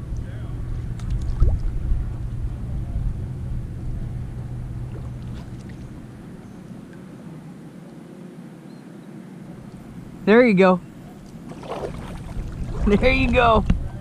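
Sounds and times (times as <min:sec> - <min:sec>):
low rumble: 0:00.0 - 0:06.9, 0:10.9 - 0:14.0
paddle strokes in water: 0:04.9 - 0:06.1, 0:11.1 - 0:13.8.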